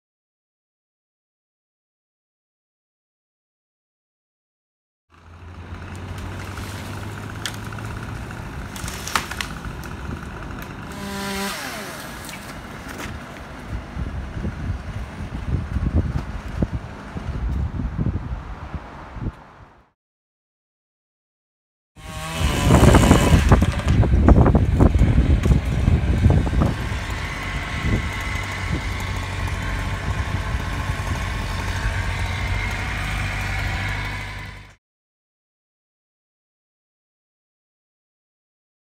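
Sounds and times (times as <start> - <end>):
chainsaw revving: 5.2 - 17.4, 22.0 - 34.8
engine running steadily: 5.2 - 18.0, 22.1 - 34.8.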